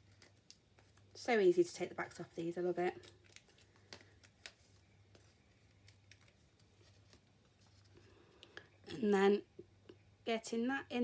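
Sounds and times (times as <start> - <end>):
faint steady hum: 0.0 - 11.0
faint clicks and rustles: 2.8 - 8.9.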